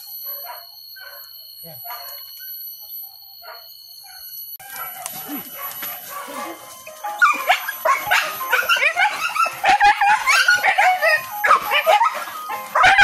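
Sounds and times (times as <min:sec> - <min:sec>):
dogs barking and yelping: 0:00.0 - 0:13.0.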